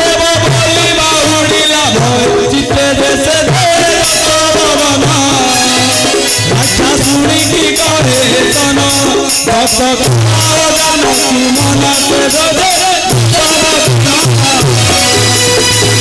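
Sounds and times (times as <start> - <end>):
sharp percussion hits: 0.0 - 16.0
wavering melody: 14.5 - 16.0.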